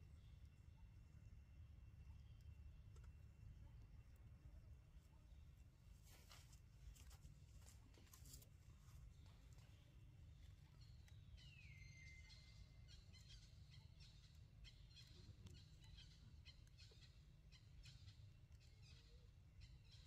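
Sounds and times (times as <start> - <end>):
faint high chirps: 10.5 - 18.0.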